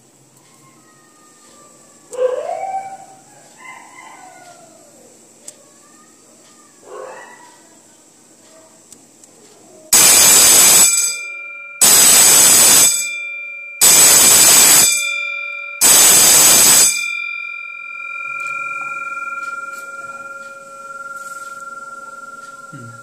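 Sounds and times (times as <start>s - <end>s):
electric bell ringing on gong: 9.9s - 23.0s.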